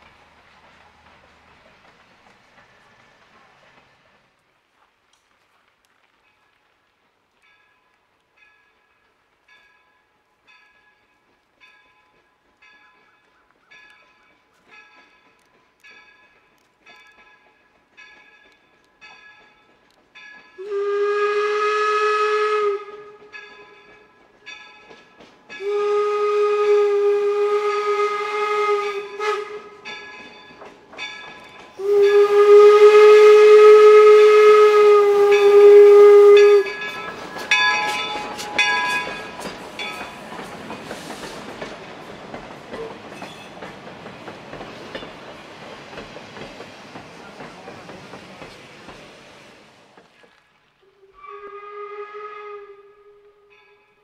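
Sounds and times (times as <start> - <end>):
train wheels clattering on rails: 0.0 - 50.6
locomotive bell ringing: 7.5 - 20.9, 23.2 - 26.0, 29.0 - 32.7, 35.3 - 40.8, 53.4 - 54.0
steam whistle blasts: 20.6 - 23.9, 25.6 - 30.1, 31.7 - 39.5, 50.8 - 53.6.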